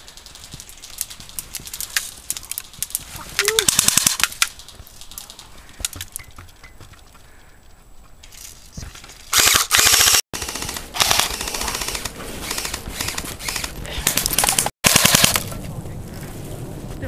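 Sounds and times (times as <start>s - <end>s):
airsoft guns firing full-auto: 3.7s - 4.3s, 9.3s - 13.7s, 14.4s - 15.5s.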